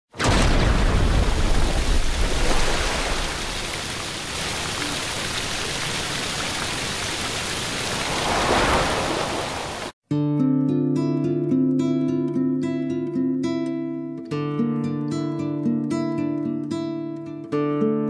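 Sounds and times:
acoustic guitar playing: 10.1s - 18.0s.

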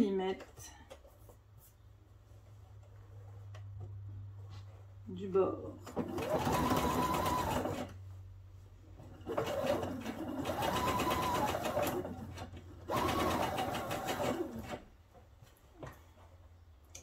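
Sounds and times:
sewing machine motor whine: 6.0s - 7.9s, 9.2s - 14.8s.

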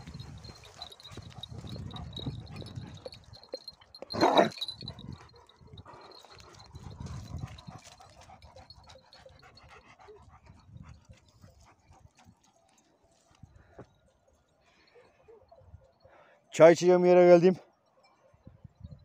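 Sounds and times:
footsteps crunching on stony ground: 0.0s - 9.5s
dogs panting: 0.0s - 13.7s
dog barking loudly: 4.1s - 4.7s.

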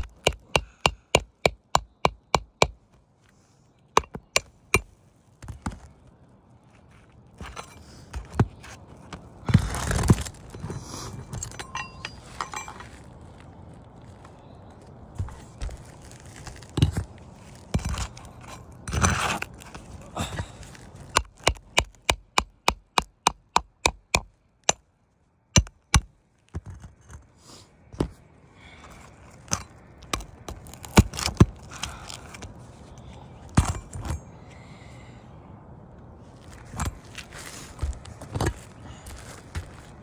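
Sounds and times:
pry tool knocking and scraping: 0.0s - 2.8s, 4.0s - 4.8s, 21.1s - 24.8s, 25.6s - 27.3s
sharp taps on shingles: 0.0s - 3.0s, 3.9s - 6.0s, 20.3s - 24.8s, 25.6s - 27.3s.

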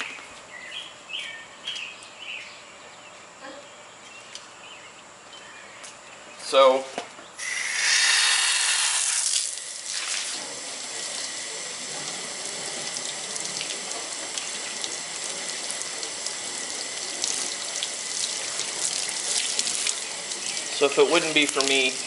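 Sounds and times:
hose water splashing on car: 7.4s - 22.0s.

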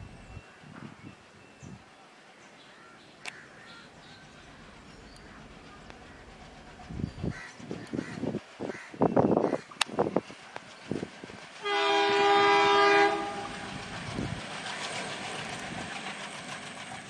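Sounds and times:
diesel engine and train running: 2.0s - 17.0s
locomotive horn blast: 11.6s - 13.8s.

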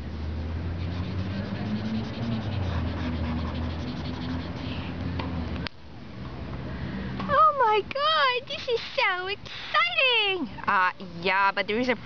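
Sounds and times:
steady low hum: 0.0s - 7.2s
marker scribbling on paper: 0.8s - 4.9s.

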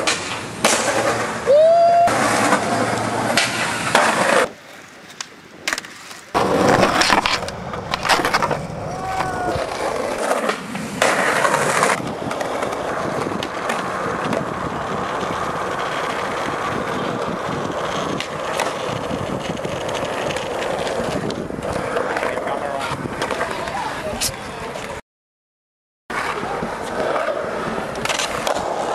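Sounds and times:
skateboard pops and landings: 0.0s - 14.5s, 26.2s - 28.9s
skateboard trucks grinding: 0.0s - 25.0s, 26.1s - 28.9s
skateboard wheels rolling on concrete: 0.0s - 25.0s, 26.1s - 28.9s.

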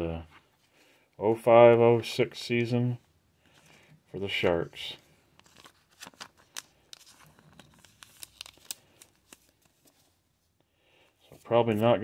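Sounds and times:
plastic card sleeve crinkling: 4.8s - 10.2s.

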